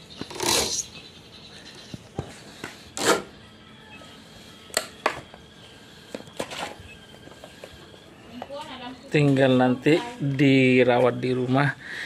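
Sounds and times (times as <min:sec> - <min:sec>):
bird sharp calls: 0:00.0 - 0:02.1.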